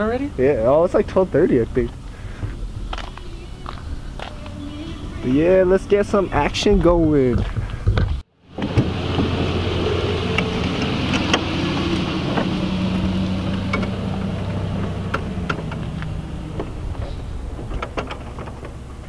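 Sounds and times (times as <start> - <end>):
vehicle engine idling: 0.0 - 19.0.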